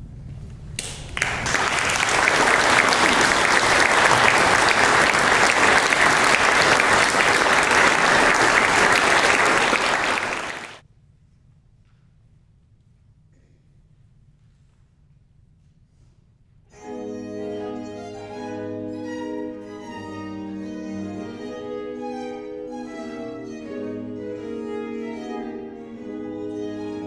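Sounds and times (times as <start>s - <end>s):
audience applauding: 0.8s - 10.8s.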